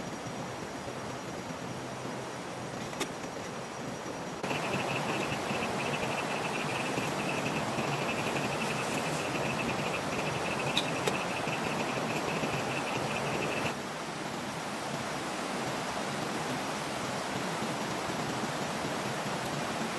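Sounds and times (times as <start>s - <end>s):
night insects chirping: 0.0s - 13.8s
steady hiss: 0.0s - 19.9s.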